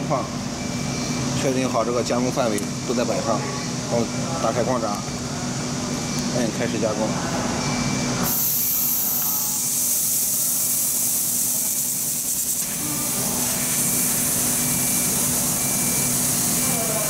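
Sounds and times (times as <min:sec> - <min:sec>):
machine hum: 0:02.2 - 0:17.0
gas jet hissing: 0:08.2 - 0:17.0.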